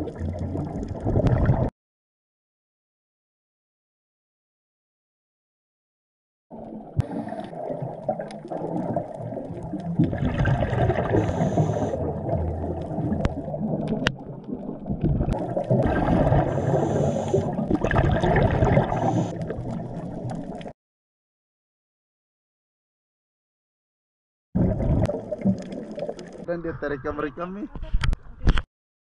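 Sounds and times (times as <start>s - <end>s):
regulator bubbling exhalations: 7.0s - 20.0s.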